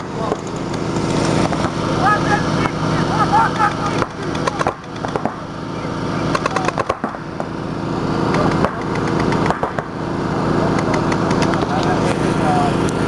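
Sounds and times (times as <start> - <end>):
paintball markers firing: 3.6 - 5.4, 6.3 - 7.5, 8.3 - 9.9.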